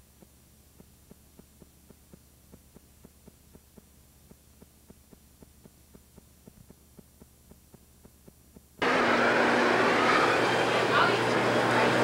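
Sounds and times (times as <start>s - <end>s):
faint regular ticks: 0.0s - 8.8s
faint steady hum: 0.0s - 12.0s.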